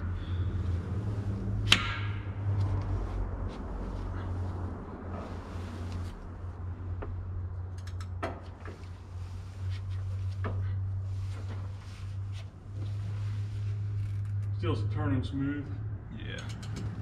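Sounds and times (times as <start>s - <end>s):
steady low hum: 0.0s - 17.0s
sharp metallic clicks and knocks: 16.3s - 17.0s.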